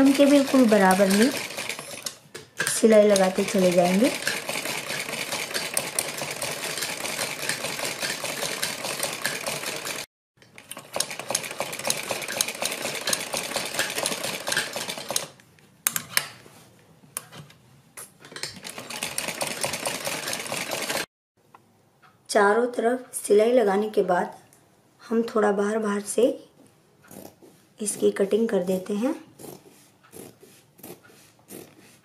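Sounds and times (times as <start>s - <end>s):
sewing machine stitching: 0.0s - 15.4s, 18.4s - 21.1s.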